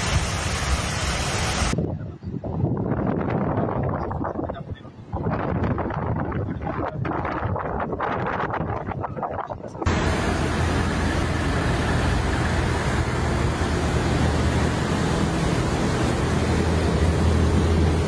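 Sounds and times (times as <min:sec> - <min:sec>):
cars driving through floodwater: 0:09.9 - 0:18.0.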